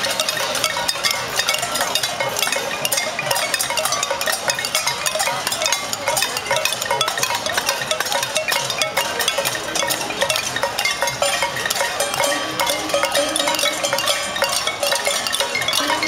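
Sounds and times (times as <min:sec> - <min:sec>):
crowd banging pots and pans: 0:00.0 - 0:16.0.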